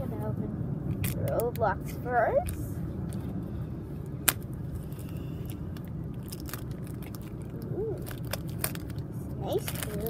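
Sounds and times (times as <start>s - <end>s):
car cabin road rumble: 0.0s - 10.0s
foil wrapper tearing and crinkling: 6.1s - 10.0s.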